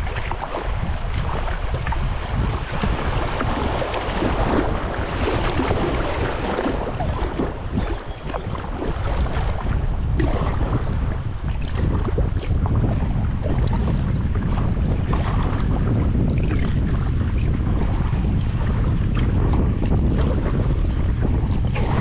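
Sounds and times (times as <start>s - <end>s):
paddle splashes: 0.0s - 22.0s
water splashing around kayak: 0.0s - 22.0s
wind buffeting microphone: 0.0s - 22.0s.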